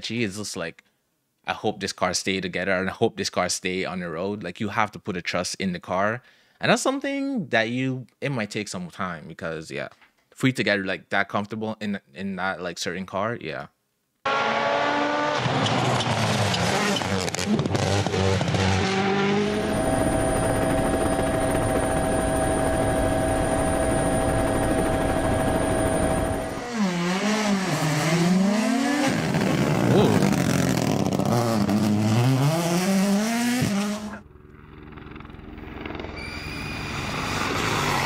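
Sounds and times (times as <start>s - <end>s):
rally car engines revving: 14.3s - 20.3s, 26.4s - 34.2s
car engine approaching: 14.3s - 36.2s.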